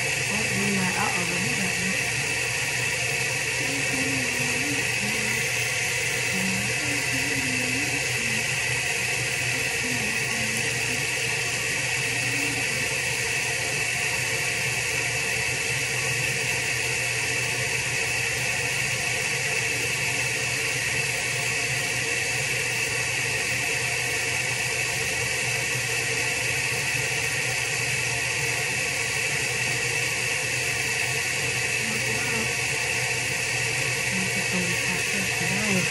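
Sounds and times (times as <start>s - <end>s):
low hum: 0.0s - 13.4s.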